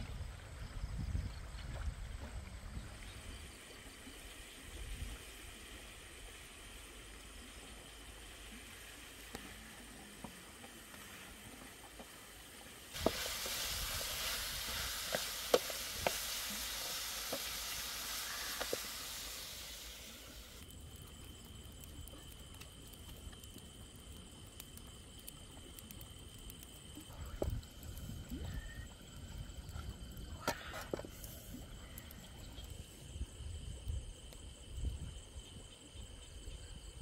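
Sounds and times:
wood fire crackling: 4.9s - 33.2s
meat sizzling in a wok: 10.6s - 20.6s.

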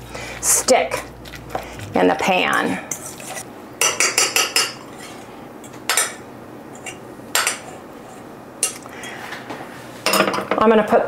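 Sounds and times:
utensil clinking on metal bowl: 0.9s - 5.2s.

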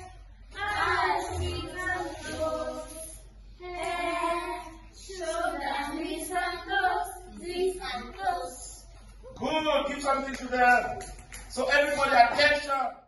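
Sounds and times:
children singing: 0.0s - 8.9s.

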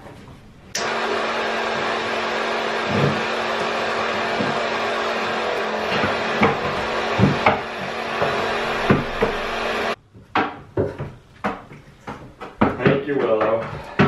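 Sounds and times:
vacuum pump running: 0.7s - 10.0s
knocks on wooden stand: 6.0s - 9.4s.

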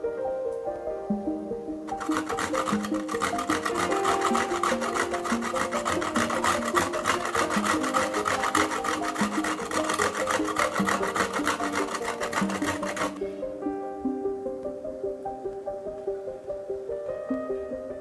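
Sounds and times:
background music: 0.0s - 18.0s
grating meat on metal grater: 1.9s - 13.3s.

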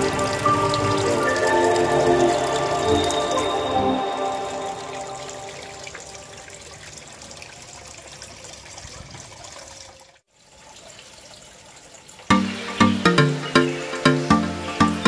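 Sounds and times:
water trickling into pond: 0.0s - 15.0s
background music with beat: 12.3s - 15.0s.

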